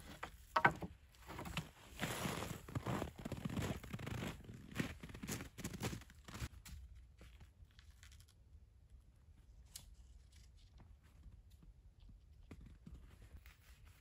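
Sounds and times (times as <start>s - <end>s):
wooden poles cracking and tapping: 0.0s - 1.7s.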